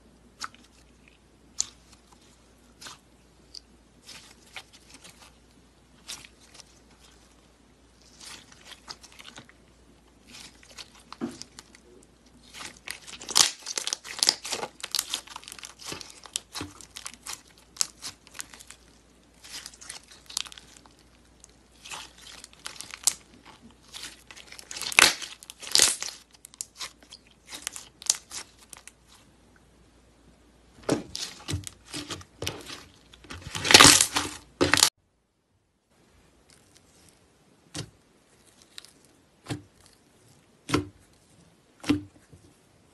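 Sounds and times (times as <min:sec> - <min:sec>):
slime crackling and popping: 0:10.2 - 0:29.2, 0:31.1 - 0:35.0.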